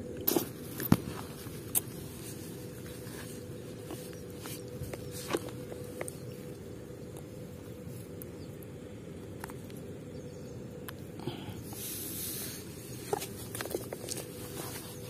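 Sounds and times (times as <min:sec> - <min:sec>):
faint steady hum: 0:00.0 - 0:15.0
steady low rumble: 0:00.0 - 0:15.0
rustling hiss of fish sliding: 0:11.6 - 0:13.5.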